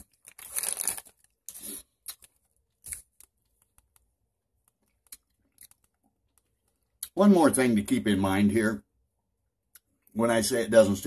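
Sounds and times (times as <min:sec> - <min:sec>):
candy wrapper crinkling: 0:00.0 - 0:06.5.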